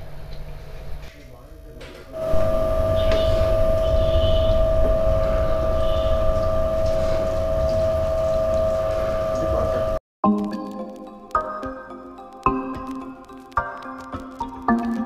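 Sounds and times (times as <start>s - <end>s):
oil press motor humming: 2.2s - 10.0s
plucked background music: 10.2s - 15.0s.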